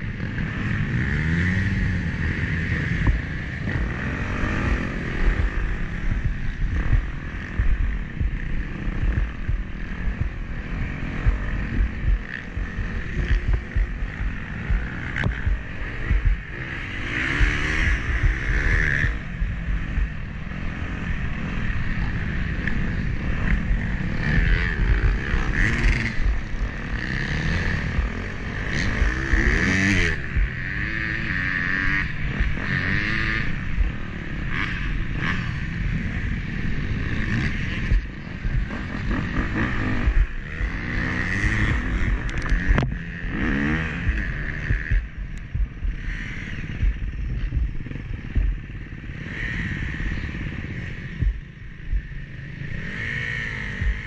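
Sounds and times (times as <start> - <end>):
dirt bike engine revving: 0.0 - 54.0
rough low rumble with knocks: 9.0 - 10.6, 11.2 - 16.5, 27.9 - 28.1, 37.8 - 40.4, 41.5 - 43.1, 44.0 - 46.0, 46.8 - 48.7, 51.2 - 52.0.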